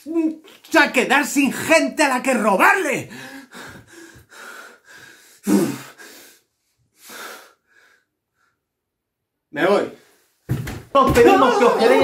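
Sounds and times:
man gasping: 0:03.1 - 0:06.4
man breathing heavily: 0:03.1 - 0:08.6.

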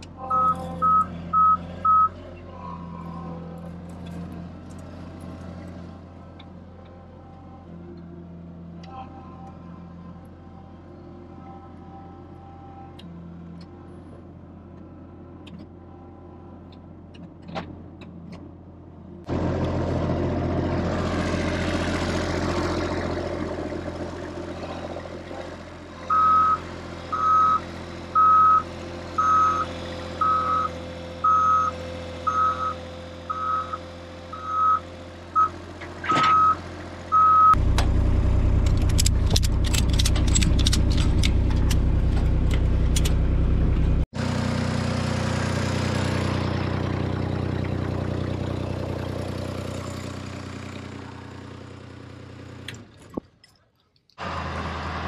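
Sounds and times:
vehicle engine running: 0:00.0 - 0:53.2, 0:54.2 - 0:55.0
reversing alarm beeping: 0:00.3 - 0:02.1, 0:26.1 - 0:27.6, 0:28.2 - 0:34.8, 0:36.3 - 0:37.6.

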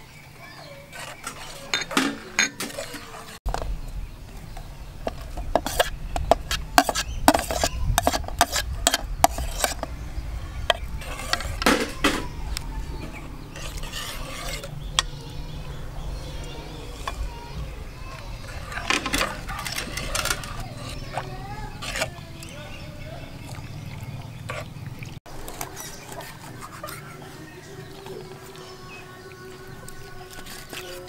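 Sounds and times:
metal ladle clinking on pot: 0:01.2 - 0:03.1
steady low rumble: 0:03.5 - 0:11.7.

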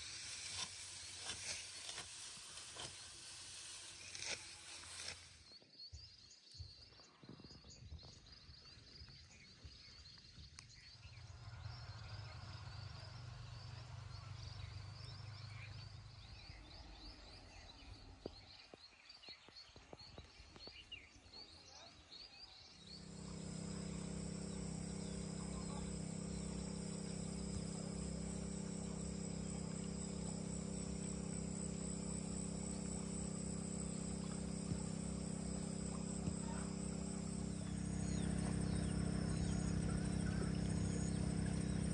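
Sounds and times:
insects chirping: 0:12.8 - 0:41.9
low even hum: 0:22.8 - 0:41.9.

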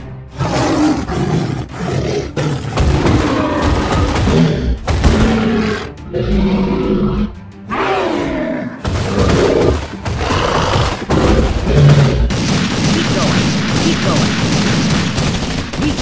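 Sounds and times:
machine-gun fire: 0:11.8 - 0:16.0.

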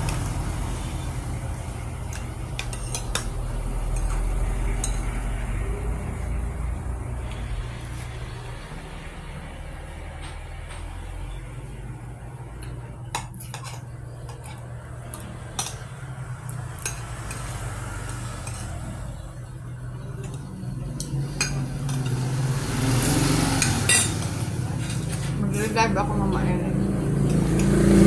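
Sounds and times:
cutlery clinking on plates: 0:02.1 - 0:05.2, 0:13.1 - 0:16.0, 0:23.6 - 0:25.4.

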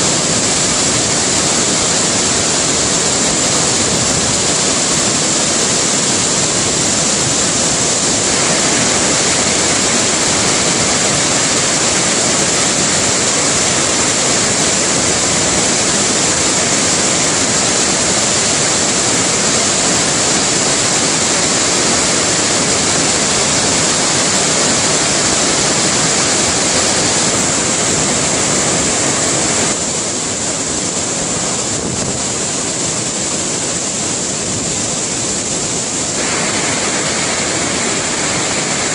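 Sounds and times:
waterfall rushing over rock: 0:00.0 - 0:38.9.

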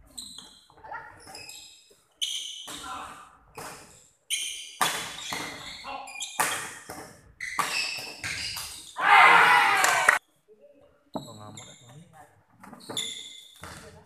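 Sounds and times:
sneakers squeaking on court: 0:00.0 - 0:02.8, 0:03.6 - 0:09.0, 0:12.6 - 0:14.0
people shouting: 0:09.0 - 0:10.2.

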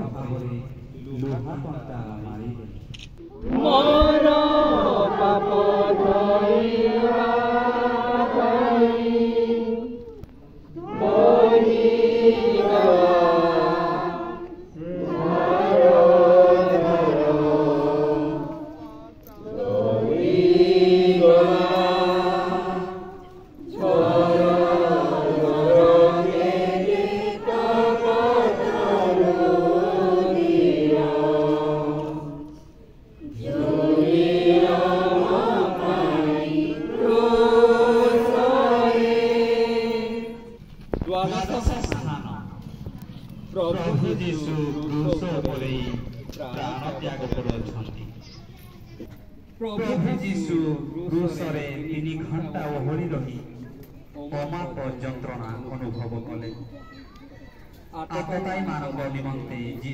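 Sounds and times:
group singing a hymn: 0:03.3 - 0:47.9.

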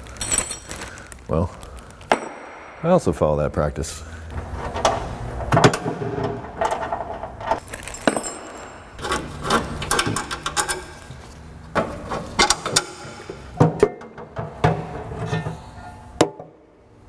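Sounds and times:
metal bolts clinking: 0:07.6 - 0:11.0.

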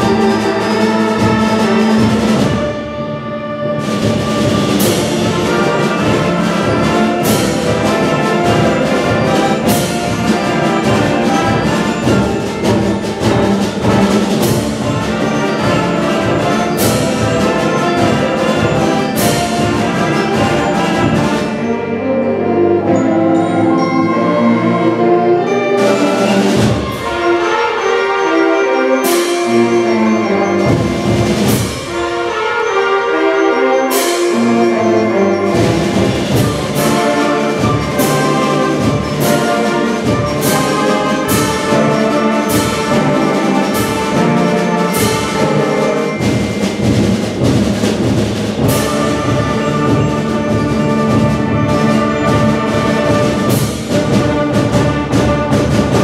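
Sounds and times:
concert band chords: 0:00.0 - 0:56.0
loud percussion hits: 0:03.8 - 0:21.7, 0:30.6 - 0:32.8, 0:35.4 - 0:56.0.

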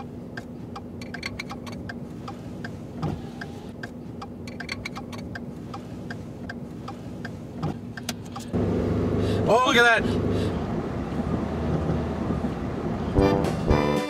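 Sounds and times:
irregular sharp ticks: 0:00.0 - 0:08.6.

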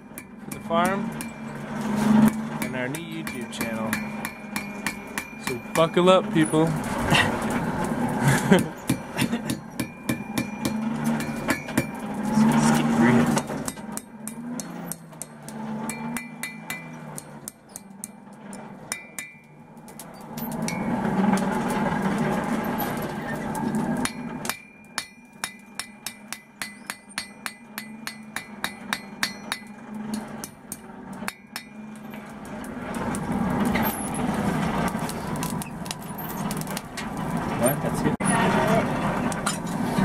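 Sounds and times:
hammer striking steel on anvil: 0:00.0 - 0:06.6, 0:08.5 - 0:19.6, 0:20.4 - 0:21.5, 0:24.0 - 0:32.4.

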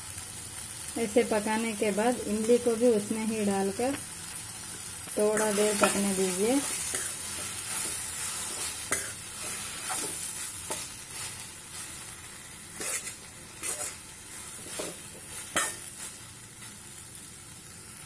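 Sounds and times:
vegetables sizzling in oil: 0:00.0 - 0:18.0
spatula scraping a pan: 0:04.8 - 0:16.2.

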